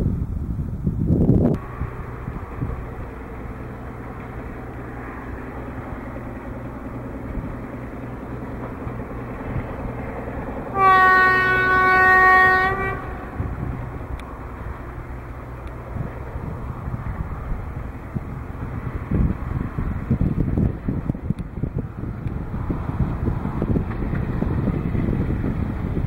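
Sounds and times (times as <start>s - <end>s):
diesel locomotive droning: 0.0s - 26.0s
locomotive horn blast: 10.7s - 14.2s.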